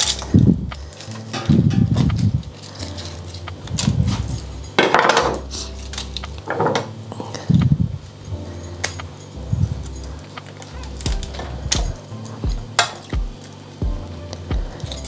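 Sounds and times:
foil rustling: 0:00.0 - 0:13.8
knife clinking on metal tray: 0:01.2 - 0:02.0.

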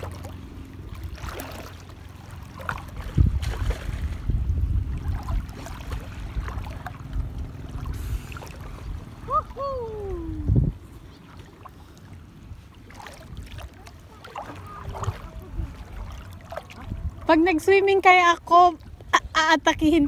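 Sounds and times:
boat motor humming: 0:00.0 - 0:20.0
water rumbling: 0:00.0 - 0:20.0
wind buffeting microphone: 0:02.8 - 0:11.2, 0:14.5 - 0:20.0.

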